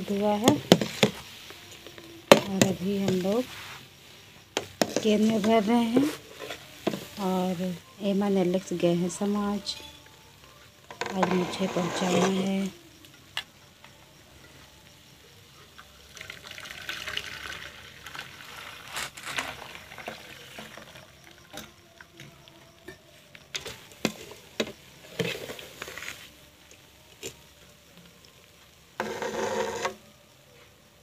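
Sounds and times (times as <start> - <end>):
milk pouring through strainer: 16.1 - 21.2.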